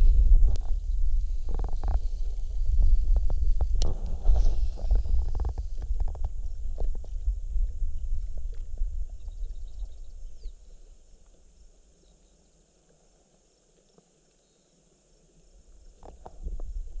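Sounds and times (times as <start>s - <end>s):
wind buffeting microphone: 0.0s - 10.7s, 16.0s - 17.0s.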